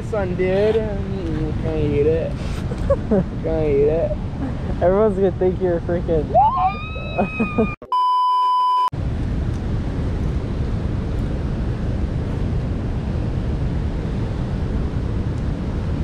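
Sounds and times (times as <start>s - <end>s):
wind buffeting microphone: 0.0s - 7.8s
censor bleep: 7.8s - 8.9s.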